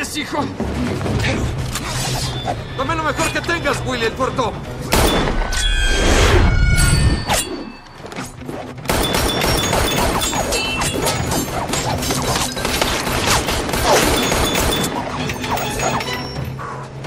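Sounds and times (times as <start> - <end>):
film score music: 0.0 - 17.0
gunshots: 8.8 - 15.0.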